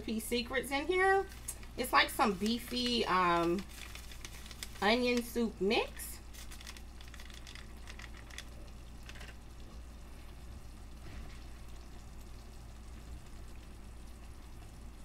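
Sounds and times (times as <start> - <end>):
gravy bubbling and sizzling: 0.0 - 15.0
stirring clicks: 1.3 - 5.4, 6.3 - 9.4.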